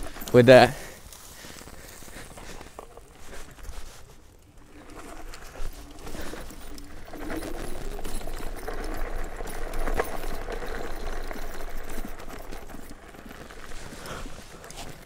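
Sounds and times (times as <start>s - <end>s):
vehicle frame rattling over bumps: 4.6s - 15.0s.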